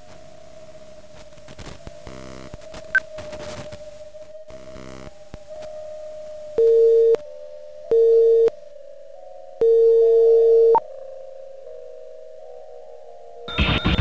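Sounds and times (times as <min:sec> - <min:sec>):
electronic drone: 0:00.0 - 0:10.9, 0:11.6 - 0:14.0
loud low electronic beeps: 0:13.5 - 0:14.0.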